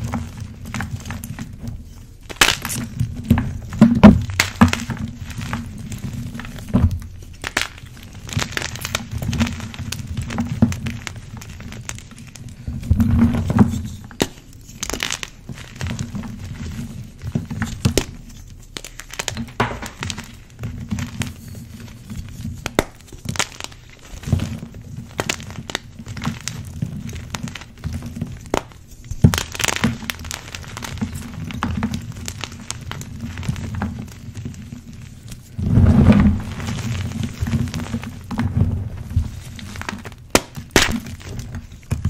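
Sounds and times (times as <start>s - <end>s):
chalk crunching and cracking: 0.0s - 42.0s
low rumble of handling: 34.9s - 40.3s.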